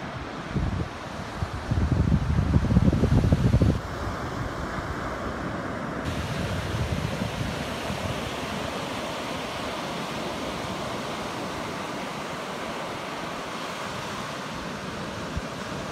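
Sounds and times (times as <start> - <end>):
waves breaking on beach: 0.0 - 15.9
wind rumbling on microphone: 0.0 - 15.9.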